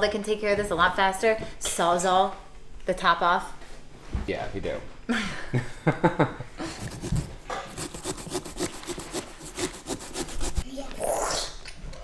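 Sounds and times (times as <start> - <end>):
saw cutting pumpkin rind: 6.8 - 10.6.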